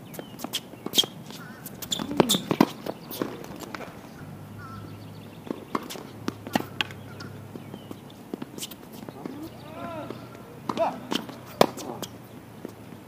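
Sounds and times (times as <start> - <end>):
racket hitting tennis ball: 0.4 - 4.1, 5.4 - 12.1
ball bouncing: 1.8 - 4.0.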